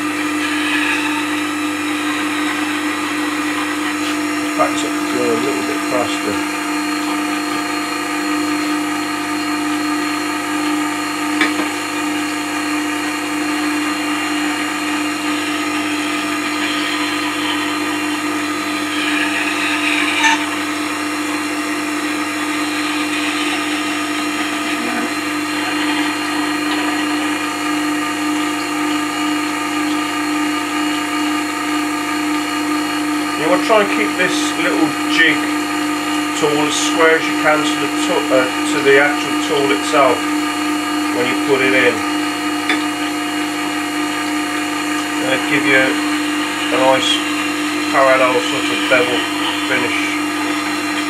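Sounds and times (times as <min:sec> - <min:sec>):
grinder motor humming: 0:00.0 - 0:51.0
steel rasping on stone: 0:18.7 - 0:20.5.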